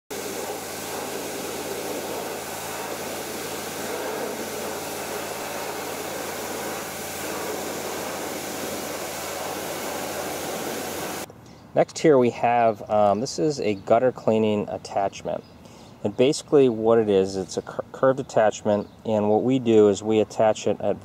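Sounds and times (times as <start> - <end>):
pressure washer motor humming: 0.0 - 11.3
water spray hissing: 0.1 - 11.3.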